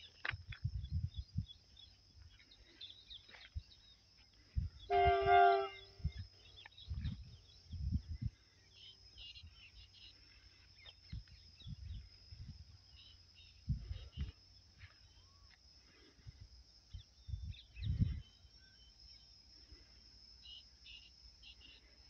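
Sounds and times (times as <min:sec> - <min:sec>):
train horn blast: 0:04.9 - 0:06.0.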